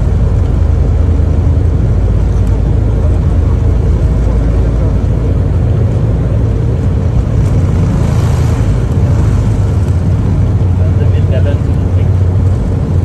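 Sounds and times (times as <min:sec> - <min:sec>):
deep rumble of plane rolling: 0:00.0 - 0:13.0
jet engines humming: 0:00.0 - 0:13.0.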